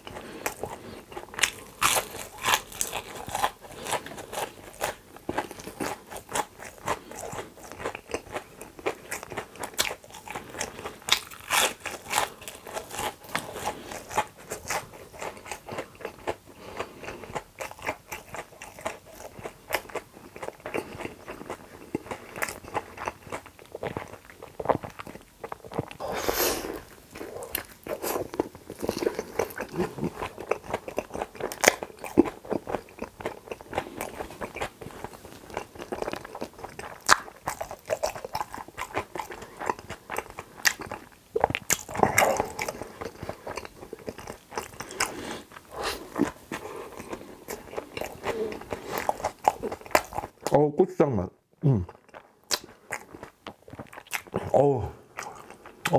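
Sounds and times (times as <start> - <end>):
chewing and crunching food: 0.0 - 50.6, 51.6 - 55.9.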